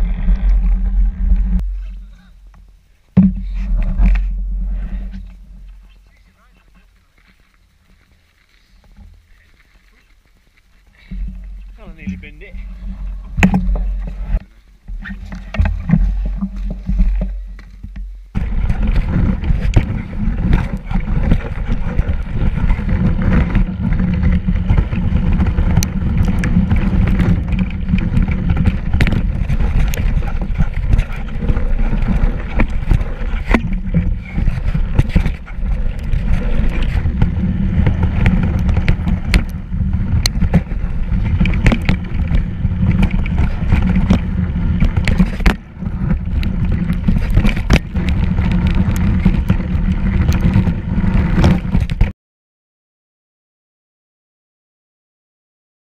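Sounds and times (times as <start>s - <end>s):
bike rattles and knocks: 0.0s - 6.4s, 10.9s - 52.1s
bike riding rumble: 0.0s - 52.1s.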